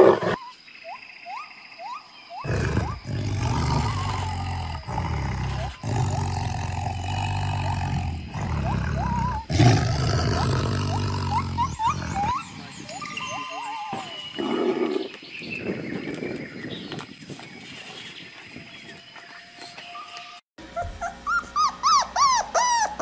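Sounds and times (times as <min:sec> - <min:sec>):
tiger growling deeply: 0:02.5 - 0:12.4.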